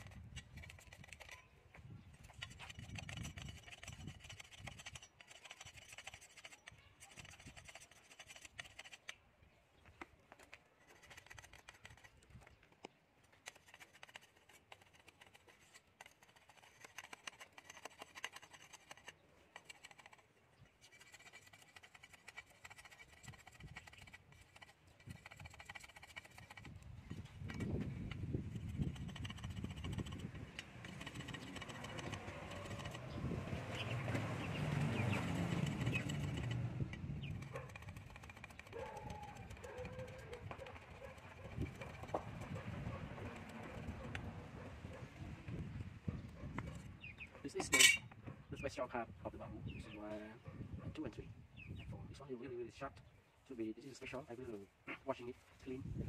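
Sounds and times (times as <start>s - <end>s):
scraping bamboo rod: 0.0s - 9.2s, 10.7s - 44.2s, 47.6s - 48.1s
small irregular clicks: 10.0s - 26.8s, 35.4s - 42.3s.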